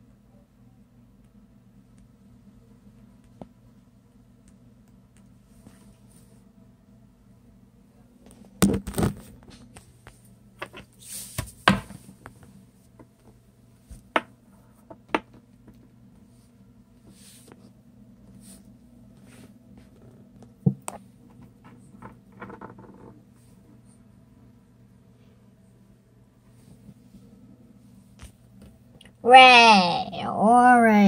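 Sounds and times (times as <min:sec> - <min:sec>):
faint steady hum: 0:00.0 - 0:31.0
knocks and taps on wooden table: 0:14.1 - 0:14.3, 0:14.9 - 0:15.8.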